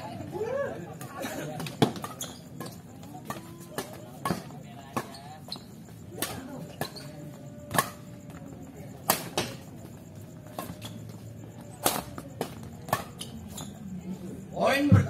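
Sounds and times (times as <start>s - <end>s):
rackets striking shuttlecock: 7.7s - 8.2s, 9.0s - 9.6s, 11.8s - 13.2s.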